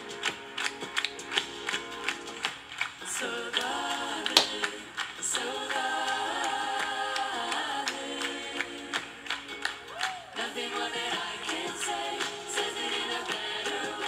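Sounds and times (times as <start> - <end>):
group singing slow harmonies: 3.0 - 14.0.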